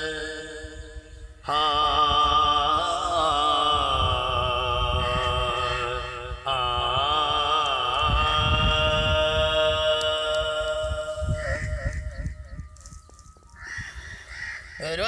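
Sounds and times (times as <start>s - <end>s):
man singing unaccompanied: 0.0s - 11.8s.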